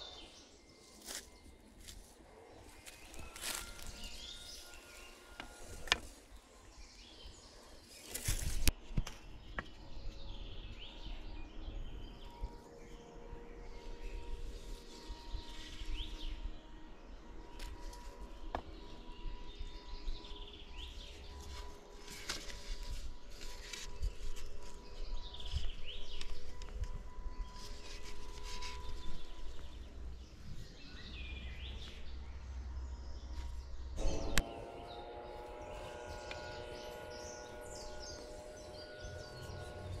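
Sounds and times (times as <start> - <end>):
sticks rustling on dry leaves: 0.8 - 6.6, 7.8 - 8.7, 21.0 - 29.9, 35.2 - 40.0
faint steady hum: 9.6 - 40.0.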